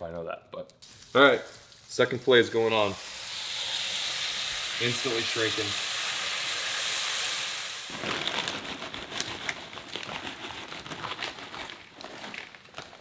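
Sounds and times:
chips poured onto metal sheet: 0.8s - 3.0s
fish sizzling in a frying pan: 0.8s - 7.9s.

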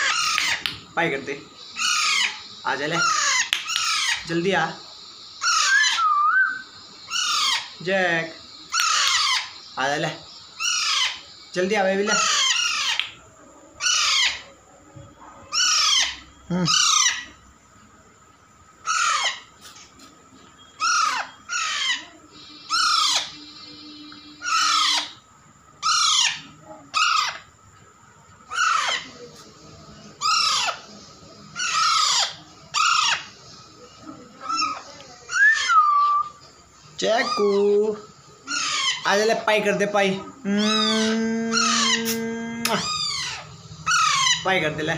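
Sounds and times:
parakeet squawking: 0.0s - 0.6s, 1.8s - 4.4s, 5.4s - 6.0s, 7.1s - 7.8s, 8.7s - 9.6s, 10.6s - 11.2s, 12.0s - 13.0s, 13.8s - 14.5s, 15.5s - 17.3s, 18.9s - 19.5s, 20.8s - 25.2s, 25.8s - 27.4s, 28.5s - 29.3s, 30.2s - 30.9s, 31.6s - 33.3s, 34.4s - 36.2s, 37.0s - 39.6s, 40.6s - 44.9s.

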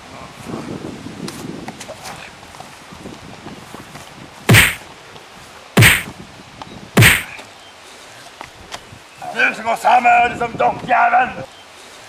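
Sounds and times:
loud whacking punches: 4.5s - 4.8s, 5.8s - 6.1s, 7.0s - 7.4s.

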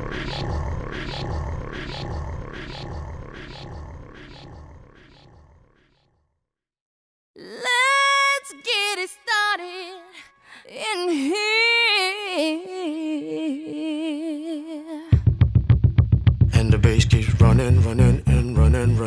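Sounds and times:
person singing with vibrato: 7.4s - 15.2s, 16.6s - 19.0s.

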